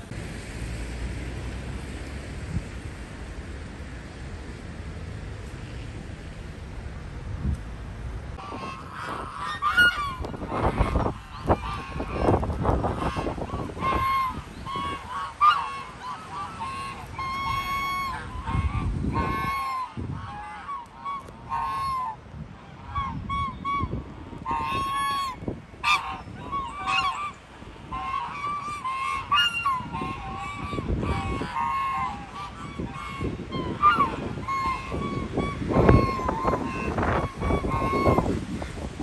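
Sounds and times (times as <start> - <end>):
geese honking: 8.4 - 38.3.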